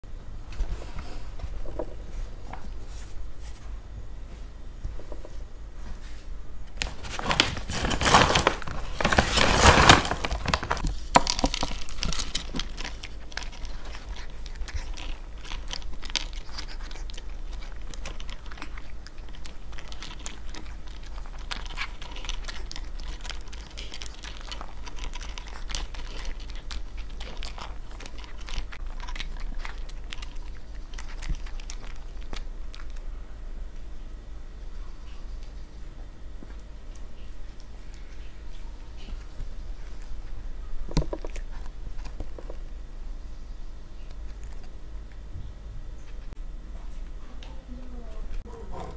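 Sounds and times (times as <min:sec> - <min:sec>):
food rustling and rattling: 0:06.8 - 0:32.9, 0:40.8 - 0:42.6
dog chewing dry kibble: 0:06.8 - 0:33.1, 0:37.5 - 0:42.7.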